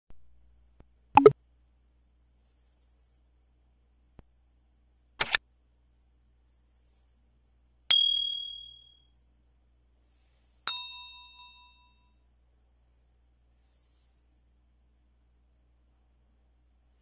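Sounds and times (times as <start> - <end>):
bell-like chime: 7.9 - 9.0, 10.7 - 12.1
bright ding: 7.9 - 9.0, 10.7 - 12.1.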